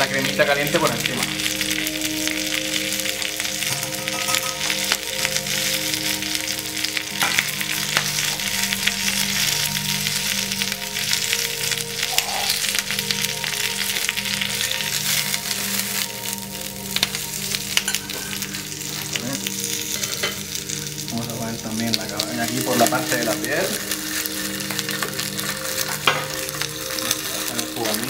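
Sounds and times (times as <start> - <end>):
fish and spinach sizzling in pans: 0.0 - 28.0.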